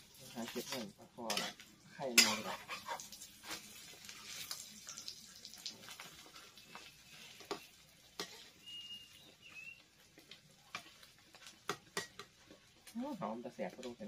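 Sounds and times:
egg sizzling in oil: 0.0 - 14.0
spatula scraping pan: 0.2 - 4.6, 5.9 - 9.2.

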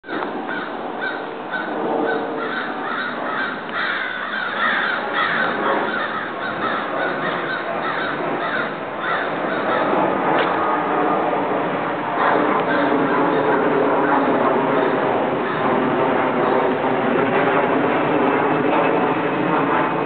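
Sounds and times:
crows cawing: 0.1 - 10.6, 12.2 - 15.9.

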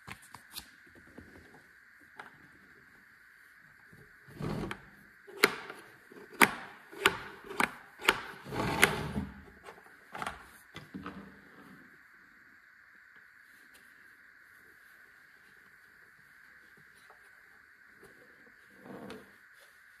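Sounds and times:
plastic clicks and knocks: 4.7 - 9.0.

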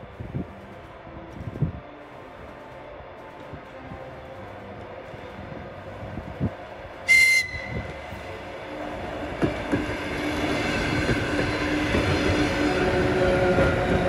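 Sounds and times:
train horn toot: 7.1 - 8.0
train wheels knocking over rail joints: 9.3 - 12.8.

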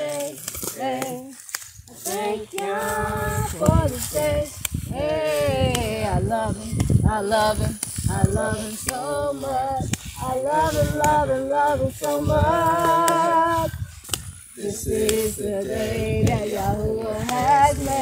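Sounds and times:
voices singing unaccompanied: 0.0 - 18.0.

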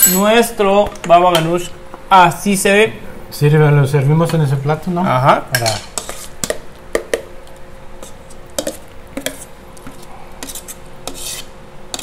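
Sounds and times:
utensil scraping metal bowl: 5.6 - 6.5, 8.0 - 9.6, 10.4 - 12.0.

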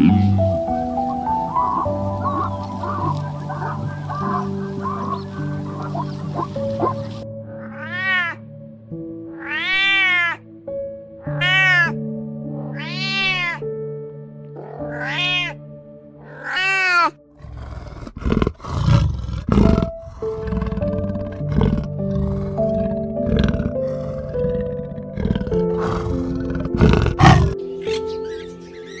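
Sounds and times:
soft background music: 0.0 - 29.0
cat meowing: 7.5 - 8.4, 9.3 - 10.4, 11.3 - 12.0, 12.6 - 13.6, 14.6 - 15.6, 16.2 - 17.2
panther growling: 17.4 - 27.6.

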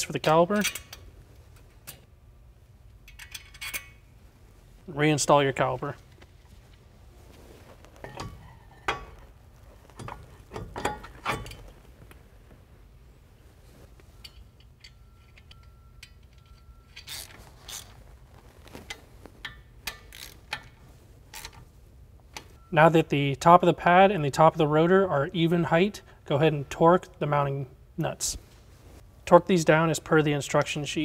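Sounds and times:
wrench clicking: 3.0 - 3.9, 19.4 - 20.7
metal clinks and knocks: 9.9 - 11.7.

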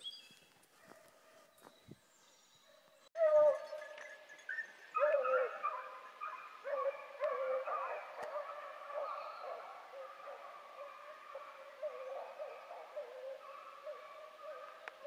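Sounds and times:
hounds baying in chorus: 2.7 - 15.0.

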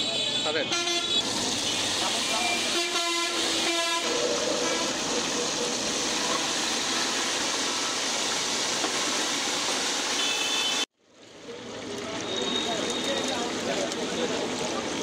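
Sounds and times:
vehicle horn: 0.1 - 1.8, 2.4 - 5.0, 10.2 - 10.9
chicken deep-frying in oil: 1.2 - 15.0.

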